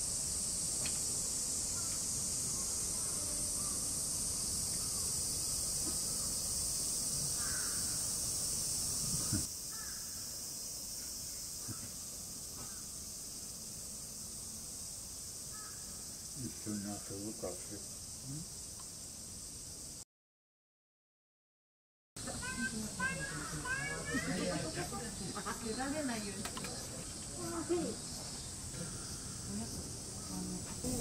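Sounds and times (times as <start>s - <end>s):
insect chorus drone: 0.0s - 20.0s, 22.2s - 31.0s
crow cawing: 7.4s - 8.0s, 9.7s - 10.2s, 15.5s - 15.9s, 23.0s - 24.3s
thump: 11.6s - 12.8s.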